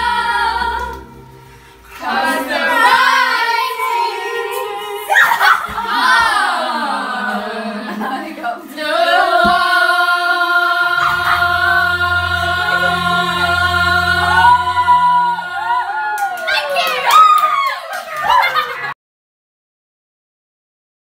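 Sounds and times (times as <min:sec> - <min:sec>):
girls singing together: 0:00.0 - 0:16.5
low bass tone: 0:10.9 - 0:16.0.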